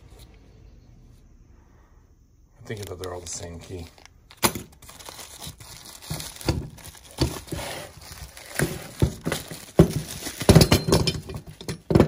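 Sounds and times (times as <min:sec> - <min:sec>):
bubble wrap crinkling: 0:02.6 - 0:10.6.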